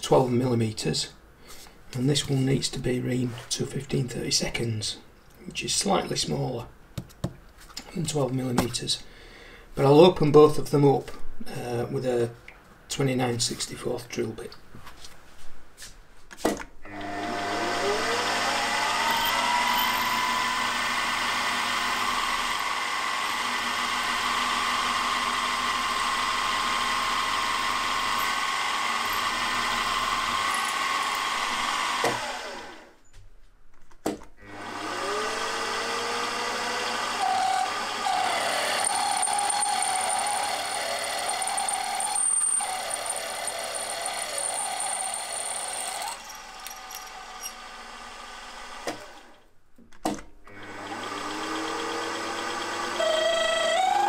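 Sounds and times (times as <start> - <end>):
drill cutting into aluminium: 16.9 - 32.8, 34.5 - 49.0, 50.5 - 54.0
milling machine spindle whine: 16.9 - 32.8, 34.5 - 48.0, 50.6 - 54.0.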